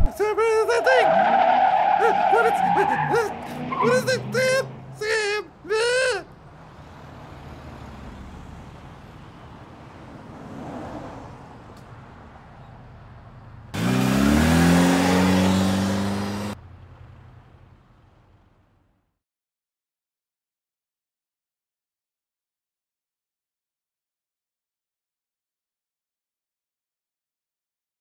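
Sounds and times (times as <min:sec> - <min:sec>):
car engine rumbling and revving: 0:00.0 - 0:05.6, 0:06.3 - 0:19.0.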